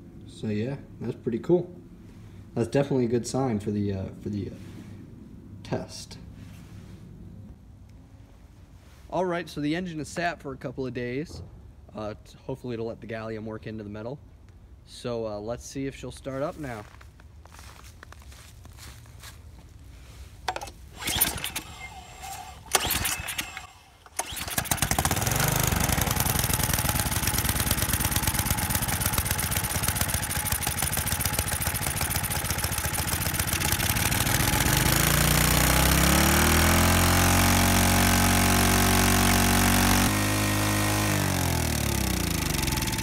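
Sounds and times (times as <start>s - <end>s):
recoil starter rope pulls: 20.4s - 43.0s
snowblower engine running: 20.5s - 43.0s.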